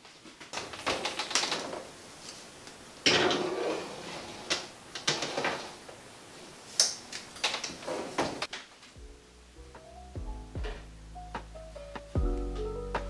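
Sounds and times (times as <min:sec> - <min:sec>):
baking sheet scraping metal rack: 0:03.0 - 0:05.9.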